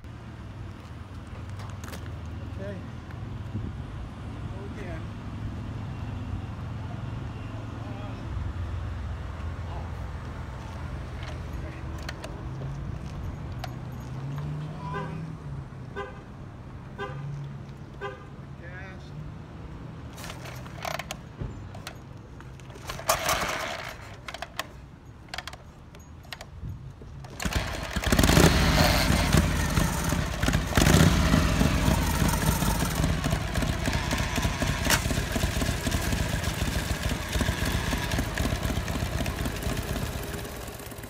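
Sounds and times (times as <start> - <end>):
kick-start mechanical clacks: 20.2 - 21.2, 22.7 - 24.7, 27.3 - 41.0
motorcycle engine revving and running: 27.3 - 41.0.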